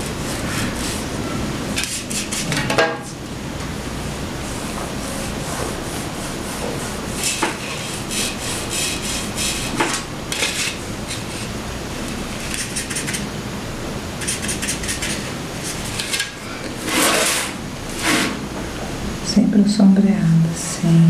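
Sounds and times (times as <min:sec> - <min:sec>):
paintbrush scratching on board: 0:01.8 - 0:02.6, 0:12.5 - 0:13.2, 0:14.2 - 0:15.3.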